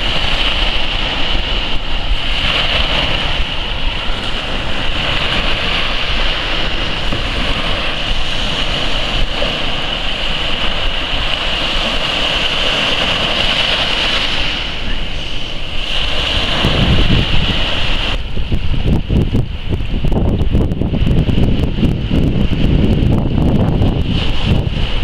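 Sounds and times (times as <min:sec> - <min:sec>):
waves splashing against rocks: 0:00.0 - 0:18.6
waves breaking on beach: 0:00.0 - 0:25.0
wind buffeting microphone: 0:00.0 - 0:25.0.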